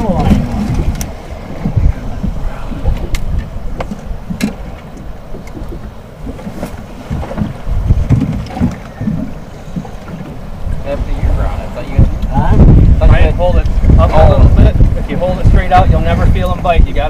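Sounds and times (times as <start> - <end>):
water slapping hull: 0.0 - 17.0
wind buffeting microphone: 0.0 - 17.0
sharp knocks and clicks: 3.0 - 10.4.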